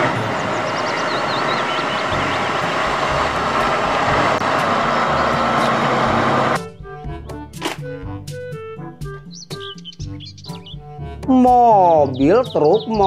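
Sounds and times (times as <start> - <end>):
tractor diesel engine under load: 0.0 - 6.7
music: 1.5 - 13.0.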